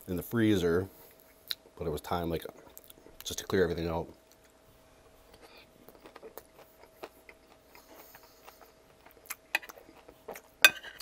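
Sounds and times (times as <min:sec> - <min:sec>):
close-miked chewing: 0:05.2 - 0:11.0.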